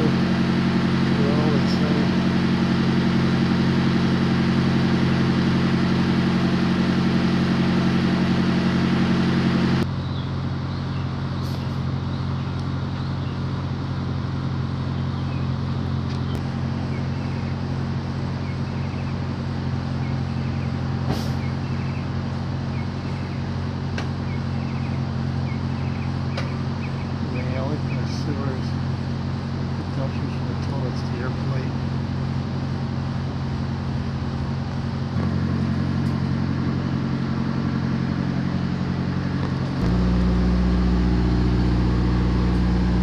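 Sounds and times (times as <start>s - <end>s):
truck engine droning: 0.0s - 43.0s.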